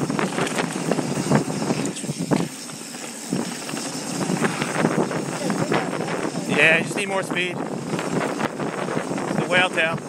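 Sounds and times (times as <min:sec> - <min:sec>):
bike rattling over bumps: 0:00.0 - 0:10.0
tyres on dirt and gravel: 0:00.0 - 0:10.0.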